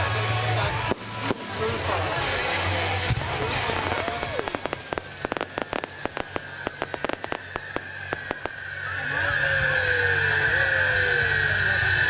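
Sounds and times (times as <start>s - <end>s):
fireworks cracking and banging: 0.4s - 9.9s
high firework whistle: 3.0s - 12.0s.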